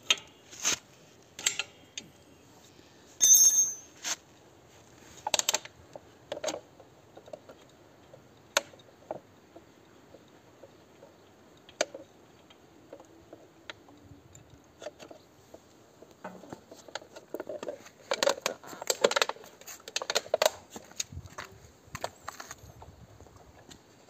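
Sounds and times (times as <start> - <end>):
crackling and tapping: 14.8 - 22.6.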